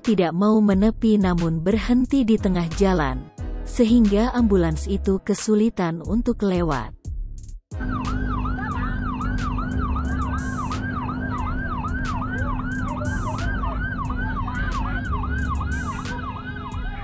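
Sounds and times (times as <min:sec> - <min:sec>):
ambulance siren yelping: 0:07.8 - 0:17.0
engines idling in traffic: 0:07.8 - 0:17.0.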